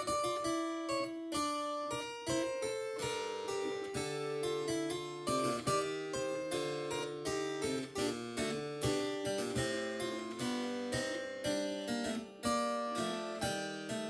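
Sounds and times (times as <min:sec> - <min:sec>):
solo harpsichord piece: 0:00.0 - 0:14.0.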